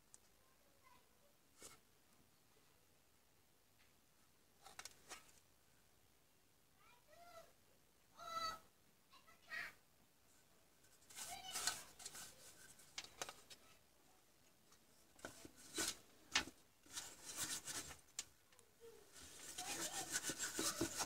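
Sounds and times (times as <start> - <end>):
bristle brush sweeping circuit board: 19.1 - 21.0.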